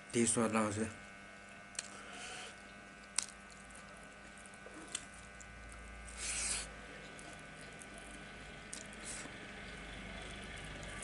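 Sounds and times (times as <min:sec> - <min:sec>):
faint electrical hum: 0:00.0 - 0:11.0
fingers squishing food: 0:03.0 - 0:11.0.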